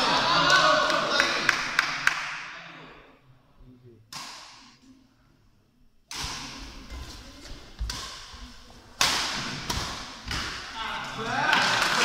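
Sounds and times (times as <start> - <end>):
racket striking shuttlecock: 6.1 - 6.7, 7.8 - 8.4, 9.0 - 10.7.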